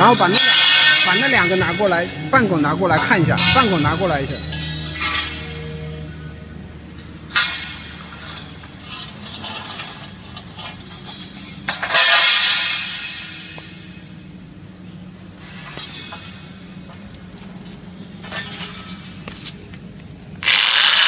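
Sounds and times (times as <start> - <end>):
metal tubes clanging on concrete: 0.0 - 5.7, 7.0 - 14.1, 15.4 - 16.9, 18.1 - 19.6.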